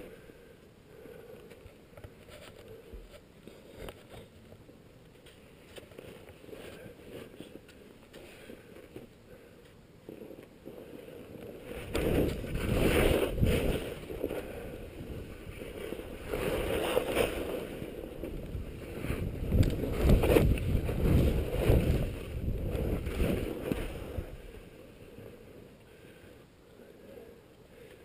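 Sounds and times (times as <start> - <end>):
skis scraping over snow: 10.2 - 25.5.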